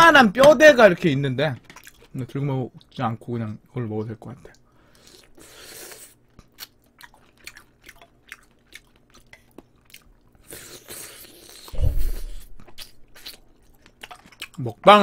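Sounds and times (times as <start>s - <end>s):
close chewing and biting: 1.6s - 2.1s, 5.0s - 14.8s
loud low thump: 11.8s - 13.0s.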